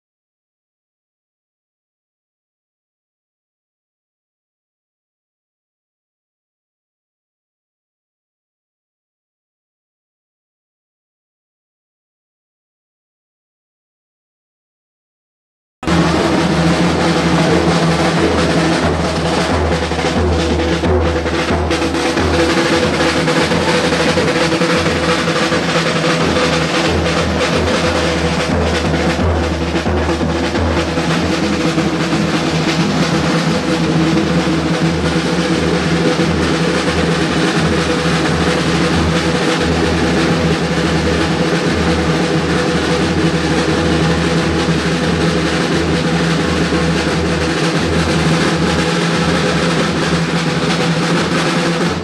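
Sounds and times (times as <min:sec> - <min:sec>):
street drummers playing fast beat: 0:15.8 - 0:52.0.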